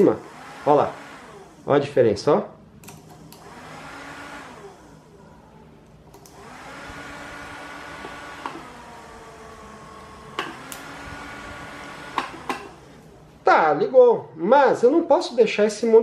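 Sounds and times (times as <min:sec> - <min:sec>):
electric fan motors whirring: 0:00.0 - 0:13.8
sharp clicks: 0:06.1 - 0:06.4, 0:10.4 - 0:10.9.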